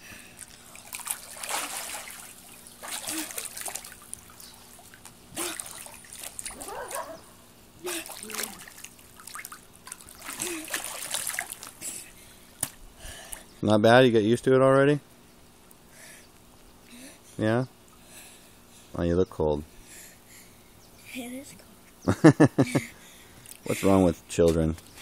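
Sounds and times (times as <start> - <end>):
water splashing: 0.4 - 7.0, 7.8 - 12.0.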